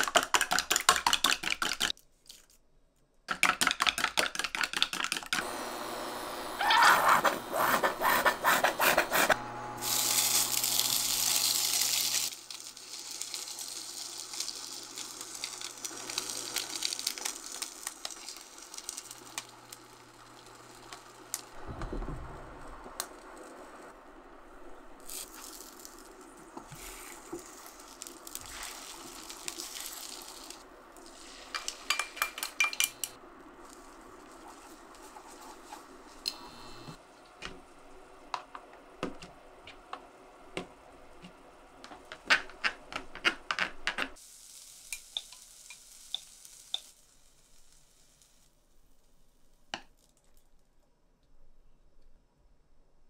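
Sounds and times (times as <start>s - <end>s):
food sizzling in a frying pan: 9.7s - 21.6s, 25.1s - 32.5s, 44.2s - 49.5s
utensils clinking on dishes: 31.5s - 33.2s.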